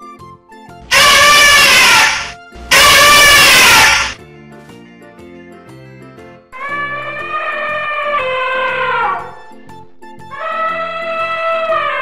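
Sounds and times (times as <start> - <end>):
background music with plucked notes: 0.0 - 0.9, 4.2 - 12.0
elephant trumpeting: 0.9 - 4.2, 6.6 - 9.4, 10.4 - 12.0.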